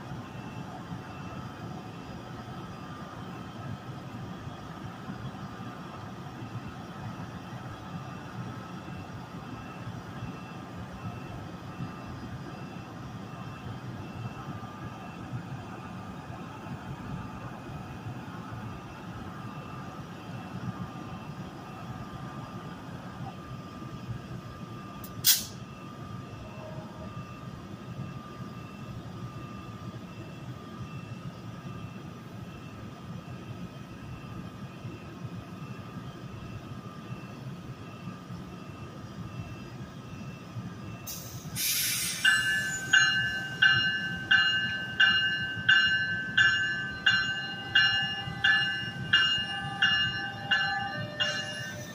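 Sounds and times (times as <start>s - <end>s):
electric locomotive rumble and whine: 0.0s - 51.9s
short loud air hiss: 25.2s - 25.6s, 41.1s - 42.4s
faint short beeps: 36.4s - 51.9s.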